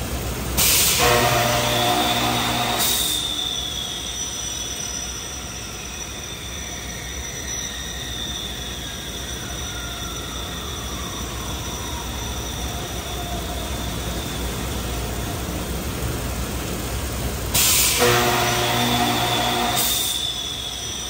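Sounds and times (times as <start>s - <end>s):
machinery low hum: 0.0s - 4.3s, 10.6s - 21.0s
falling machine whine: 0.0s - 21.0s
loud hiss: 0.0s - 21.0s
steady metallic squeal: 0.6s - 21.0s.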